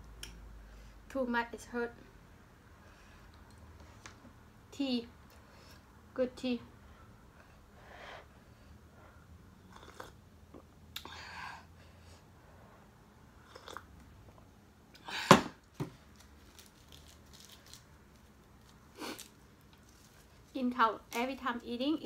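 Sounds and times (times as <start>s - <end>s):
sipping tea from a mug: 9.6s - 10.7s.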